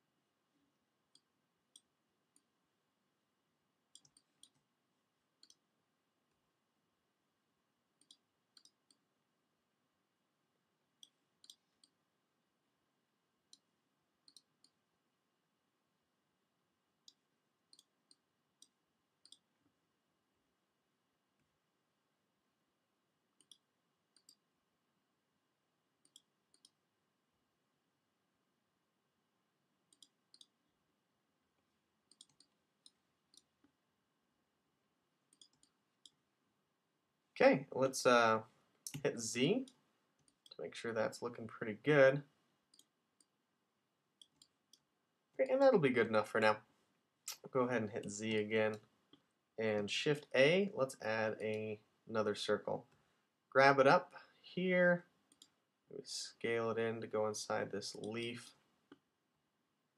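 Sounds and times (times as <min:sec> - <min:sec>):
computer mouse clicks: 0:03.9 - 0:04.6, 0:05.4 - 0:05.6, 0:08.0 - 0:09.0, 0:11.0 - 0:12.0, 0:13.5 - 0:14.8, 0:17.0 - 0:19.5, 0:23.4 - 0:24.4, 0:26.0 - 0:26.8, 0:29.9 - 0:30.6, 0:32.1 - 0:33.8, 0:35.3 - 0:36.2, 0:42.7 - 0:43.4, 0:44.2 - 0:44.9, 0:55.3 - 0:55.6
keyboard clicks: 0:26.0 - 0:26.8, 0:29.9 - 0:30.6, 0:32.1 - 0:33.5, 0:35.3 - 0:36.2.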